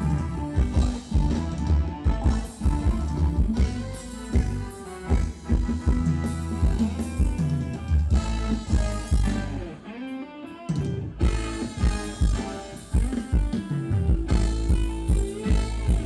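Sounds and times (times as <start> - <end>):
live band dance music: 0.0 - 16.0
drum beat: 2.1 - 9.6, 11.2 - 16.0.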